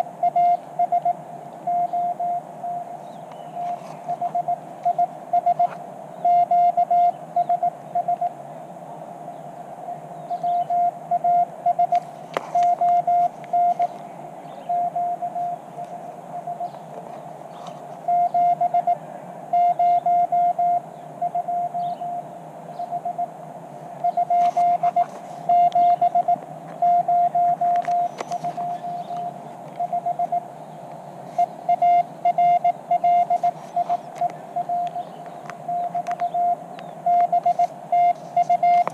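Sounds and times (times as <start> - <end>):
morse code tone: 0.0 - 2.9, 4.1 - 8.4, 10.3 - 13.9, 14.6 - 15.6, 16.3 - 16.8, 18.0 - 23.4, 24.0 - 30.5, 31.3 - 38.9
radio receiver hiss: 0.0 - 38.9
sharp clicks: 33.3 - 37.8, 38.4 - 38.9.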